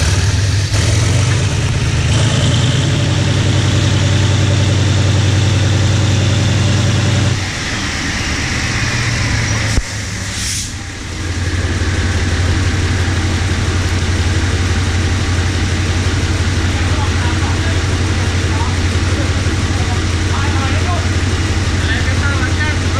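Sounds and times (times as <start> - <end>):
locomotive diesel engine running: 0.0 - 22.9
short air hiss: 10.2 - 10.8.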